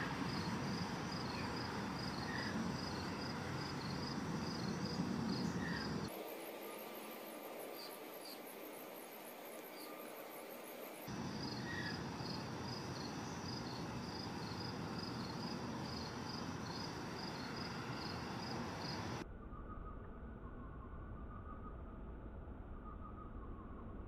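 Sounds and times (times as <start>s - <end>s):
steady hiss: 0.0s - 19.2s
insect chirping: 0.0s - 19.7s
faint low rumble: 11.1s - 24.0s.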